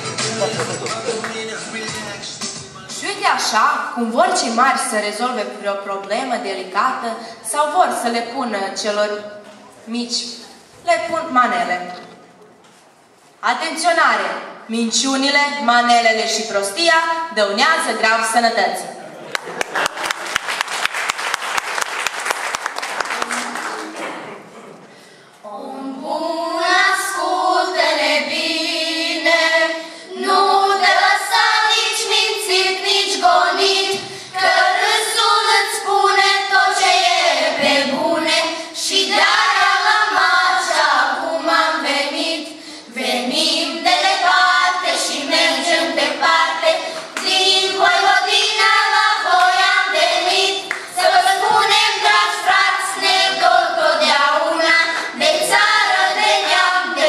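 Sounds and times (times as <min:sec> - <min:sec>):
girls singing together: 0:25.4 - 0:57.0.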